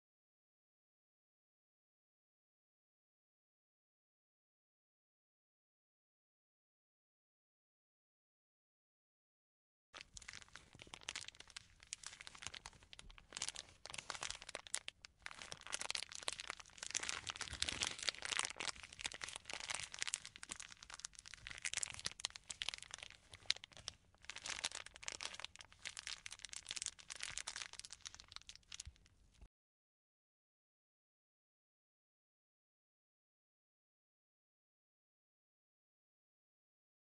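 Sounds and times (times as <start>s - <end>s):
plastic film crinkling: 10.0s - 29.2s.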